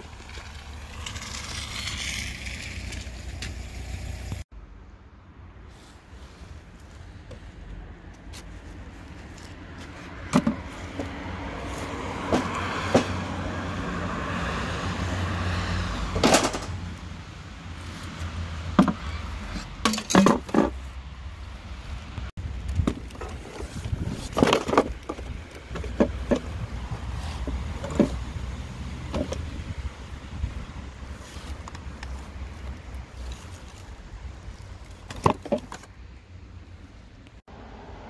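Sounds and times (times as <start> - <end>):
knocks and clatters of objects handled: 8.1 - 13.2, 16.1 - 16.9, 17.9 - 20.9, 22.4 - 28.4, 29.0 - 29.7, 31.1 - 36.1
car passing: 9.0 - 19.7, 25.4 - 33.4, 37.5 - 38.0.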